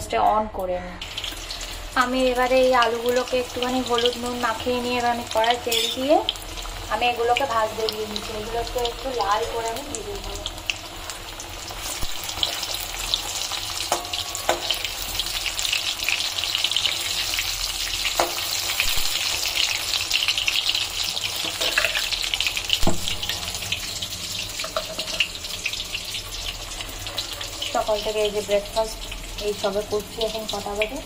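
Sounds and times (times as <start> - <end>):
potatoes sizzling in hot oil: 1.0 - 31.0
metal spatula knocking pan: 5.7 - 6.2, 13.9 - 14.9.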